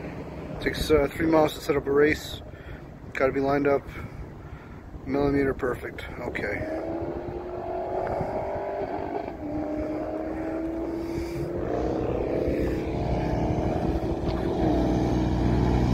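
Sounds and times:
cars accelerating hard: 6.6 - 15.9.

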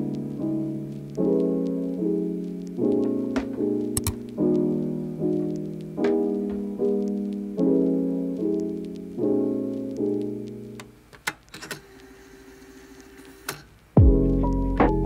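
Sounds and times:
piano chords: 0.0 - 11.0, 14.0 - 15.0
sharp clicks: 3.9 - 4.6.

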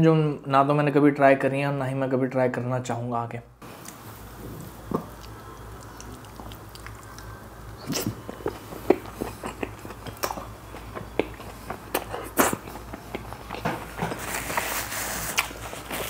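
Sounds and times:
chewing food: 3.8 - 16.0
mouth clicks and smacks: 4.8 - 13.3.

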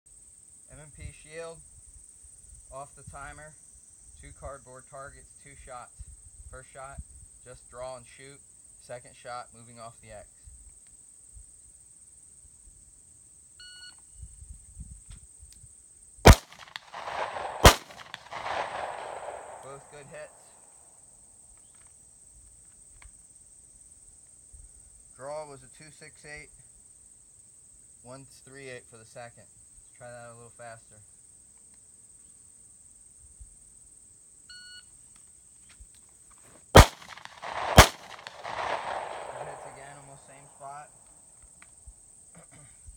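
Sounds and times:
pistol shot with echo: 16.3 - 20.6, 36.8 - 40.7.

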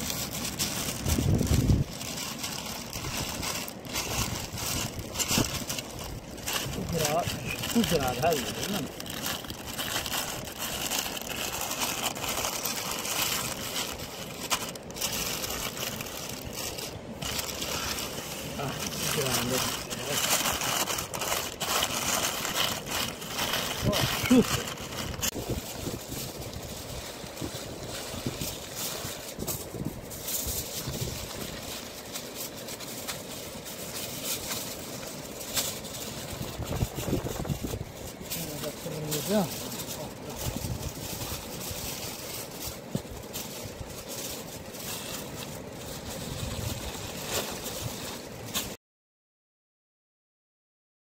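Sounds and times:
wind rumble on microphone: 0.0 - 32.7, 33.6 - 48.5
paper rustling and crinkling: 0.0 - 48.8.

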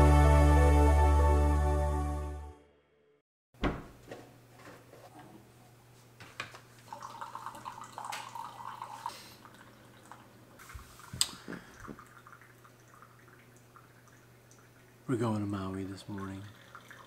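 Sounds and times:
cupboard and fridge doors knocking: 3.6 - 4.0
water running: 6.8 - 17.0.

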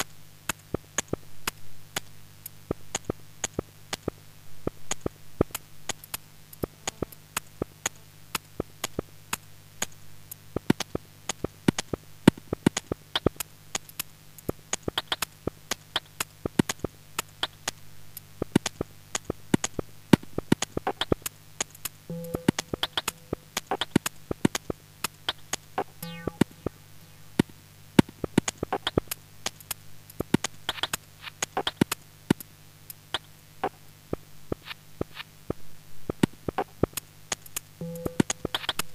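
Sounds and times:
sharp clicks and crackles: 0.0 - 38.9
short held tone: 22.1 - 23.3, 26.0 - 27.4
low synth drone: 22.1 - 23.6, 26.0 - 27.4.

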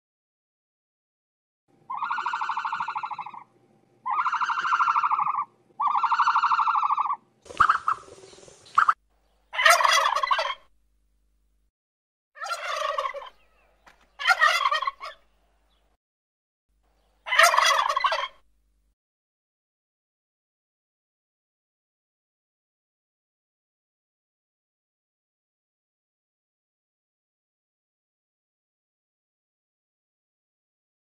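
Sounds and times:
long buzzy calls: 1.9 - 10.7
turkeys gobbling: 1.9 - 10.7, 12.4 - 15.3, 17.2 - 18.4.

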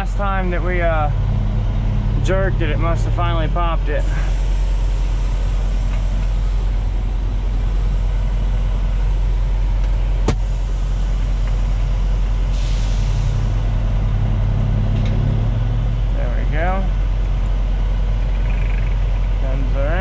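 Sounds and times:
diesel truck engine idling: 0.0 - 20.0
air hiss: 12.5 - 13.6.

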